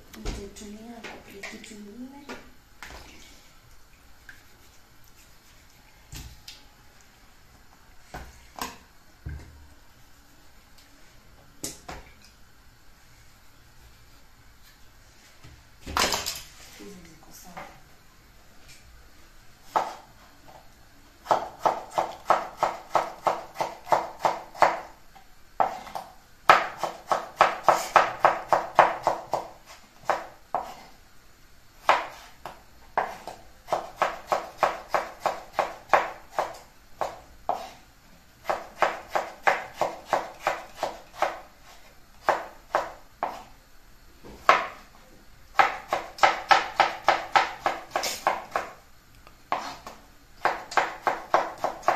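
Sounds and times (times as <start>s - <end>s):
knife chopping on wooden board: 21.3s - 24.9s, 25.6s - 30.8s, 31.9s - 37.8s, 38.4s - 41.4s, 42.2s - 43.5s, 44.4s - 44.8s, 45.6s - 48.7s, 49.5s - 51.9s.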